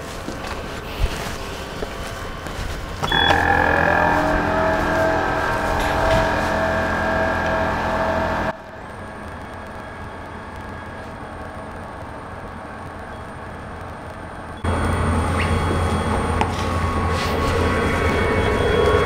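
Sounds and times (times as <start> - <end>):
laser cutter fans humming: 3.1 - 10.9.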